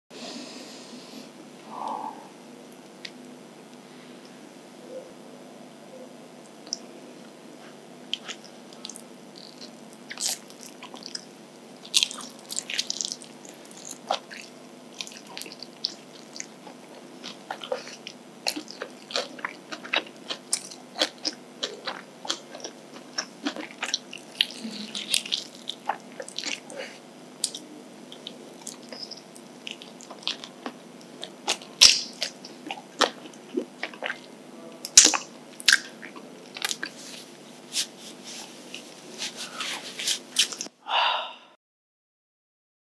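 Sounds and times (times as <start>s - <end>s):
chewing: 7.6s - 34.3s, 34.9s - 40.7s
crunching fried chicken: 8.1s - 37.0s.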